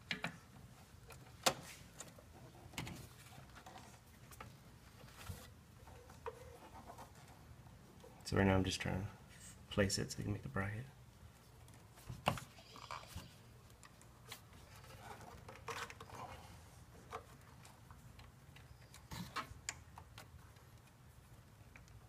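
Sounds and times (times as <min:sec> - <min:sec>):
small clicks and taps: 0:17.1 - 0:22.0.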